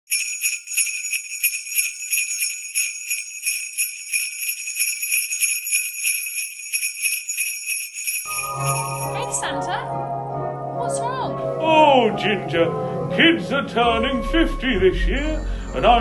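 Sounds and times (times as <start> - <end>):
sleigh bells jingling: 0.1 - 9.8.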